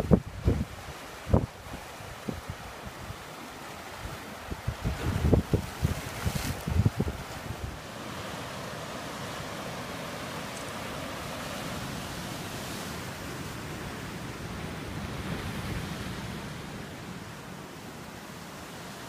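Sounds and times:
surf breaking on rocks: 3.9s - 13.8s.

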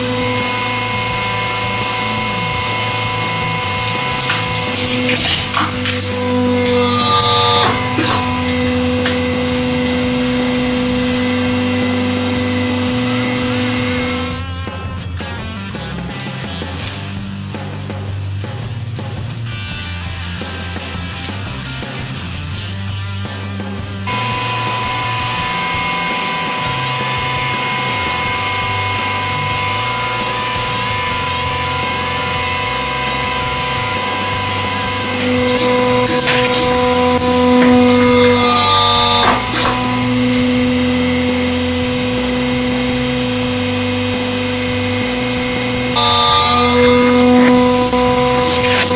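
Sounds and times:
hydraulic pump motor humming: 0.0s - 18.0s, 24.0s - 48.9s
plastic cracking and snapping: 3.8s - 6.2s, 35.2s - 38.2s.

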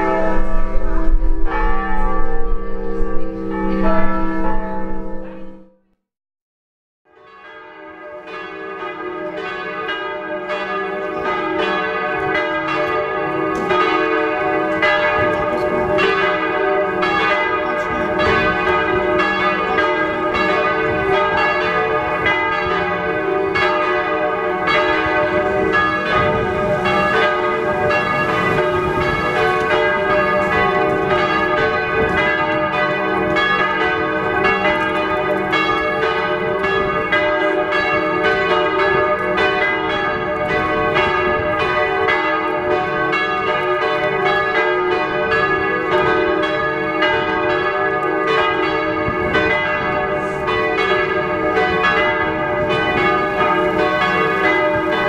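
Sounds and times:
church bells ringing: 0.0s - 5.9s, 7.1s - 55.0s.

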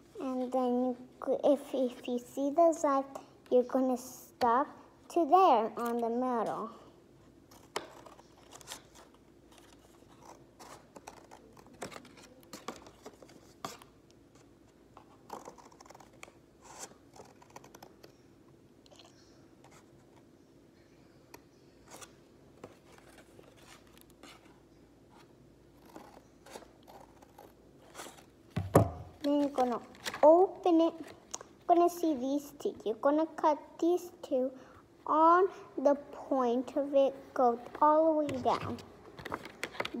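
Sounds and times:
scissors snipping paper: 15.2s - 16.3s.

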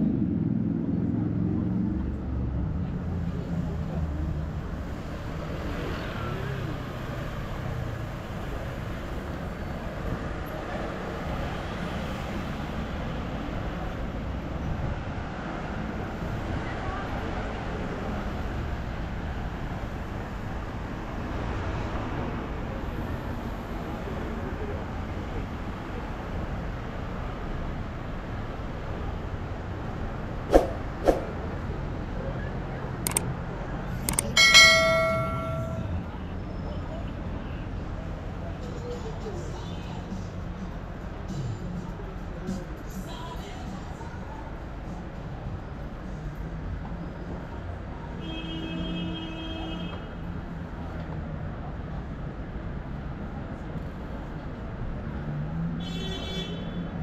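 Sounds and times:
road traffic: 0.0s - 57.0s
sharp click: 33.0s - 33.3s, 34.1s - 34.4s.

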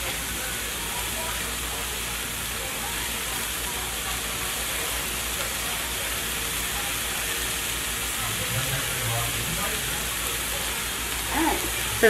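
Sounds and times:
food sizzling in frying pan: 0.0s - 12.0s
low steady hum: 8.1s - 10.9s.

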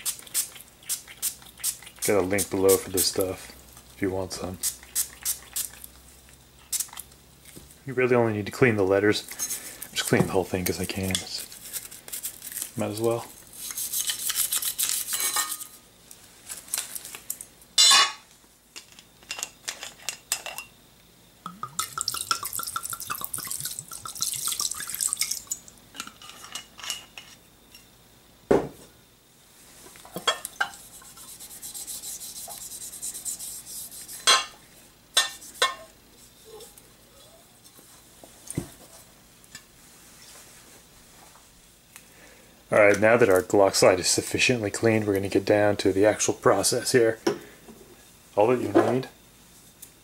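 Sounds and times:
scratchy rubbing: 13.5s - 15.6s, 30.8s - 34.3s
liquid splashing: 21.6s - 25.7s
light wiping: 30.7s - 34.3s.

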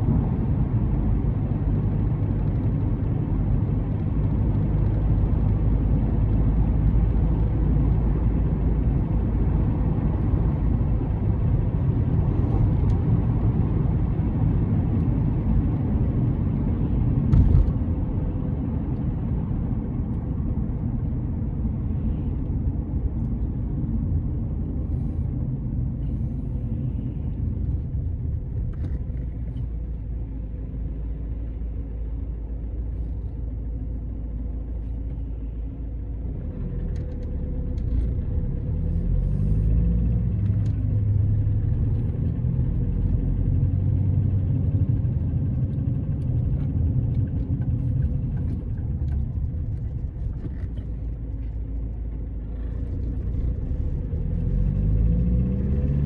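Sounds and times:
car engine and tyre rumble: 0.0s - 56.0s.

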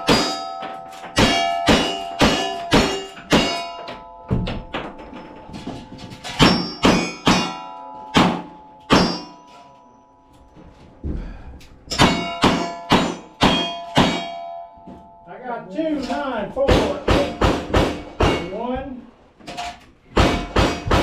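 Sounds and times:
steel target ringing: 0.0s - 10.6s, 11.9s - 15.5s.

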